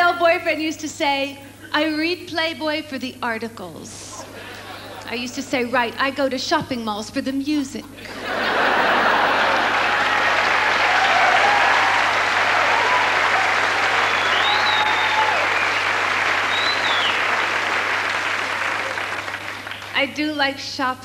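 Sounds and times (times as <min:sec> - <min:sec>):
audience applauding: 0:08.2 - 0:20.0.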